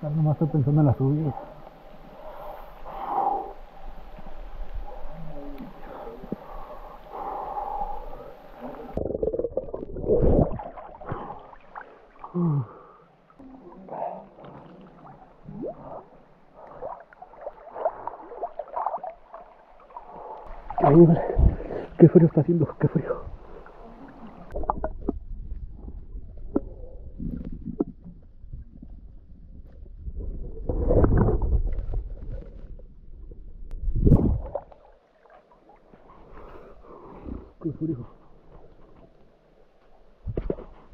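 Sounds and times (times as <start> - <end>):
water sloshing and splashing: 8.6 - 33.3
microphone handling rumble: 24.6 - 34.6.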